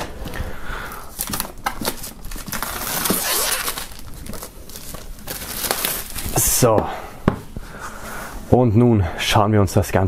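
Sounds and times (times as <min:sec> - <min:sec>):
plastic shrink-wrap crinkling: 0:00.3 - 0:06.7.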